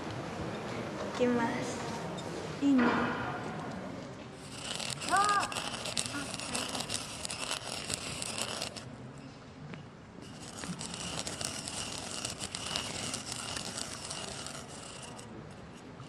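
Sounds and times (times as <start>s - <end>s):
pestle grinding seeds in bowl: 4.4s - 8.9s, 10.2s - 15.3s.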